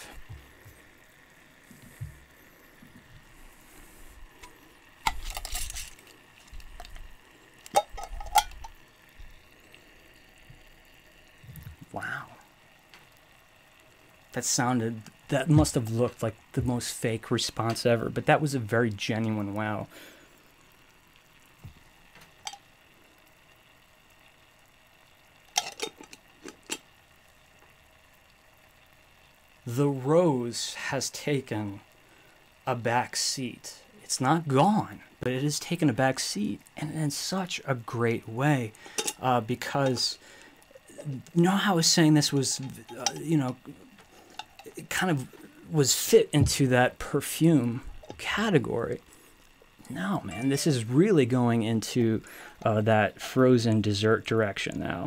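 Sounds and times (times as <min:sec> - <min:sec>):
glass jar clinking: 0:07.8 - 0:08.7.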